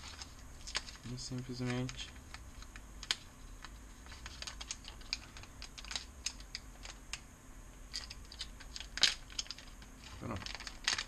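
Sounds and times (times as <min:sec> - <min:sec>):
plastic bag crinkling: 0:07.9 - 0:11.0.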